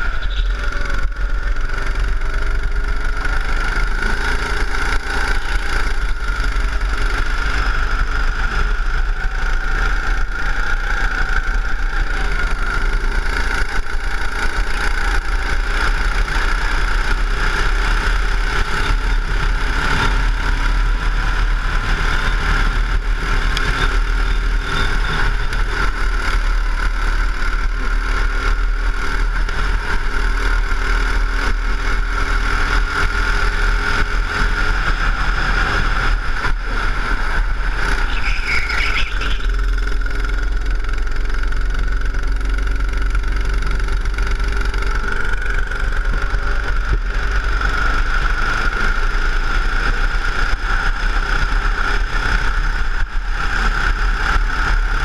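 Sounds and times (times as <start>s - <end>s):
go-kart engine running: 0.0s - 55.0s.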